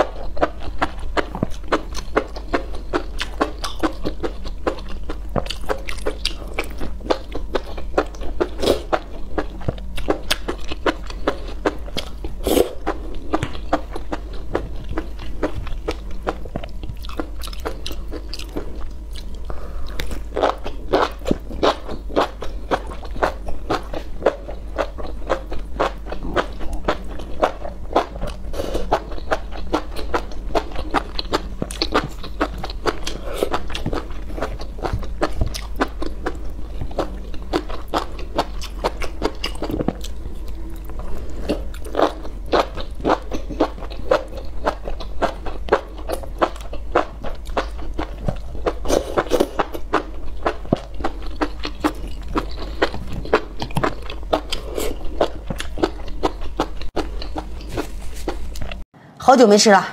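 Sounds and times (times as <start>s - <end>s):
chewing and crunching: 0.0s - 58.8s.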